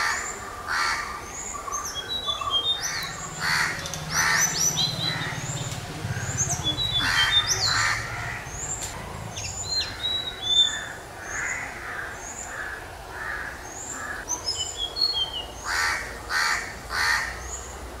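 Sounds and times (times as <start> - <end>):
harsh bird caws: 2.3 - 14.3, 15.6 - 17.5.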